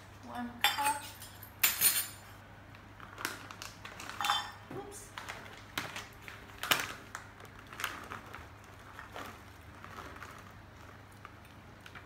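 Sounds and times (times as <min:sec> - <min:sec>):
plastic bag crinkling: 0:02.9 - 0:04.4, 0:05.0 - 0:12.0.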